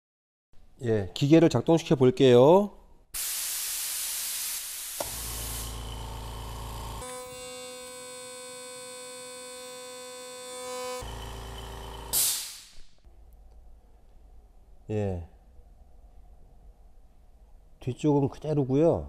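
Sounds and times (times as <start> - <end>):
air hissing: 3.2 - 6.5, 12.1 - 12.8
compressor motor humming: 5.0 - 12.2.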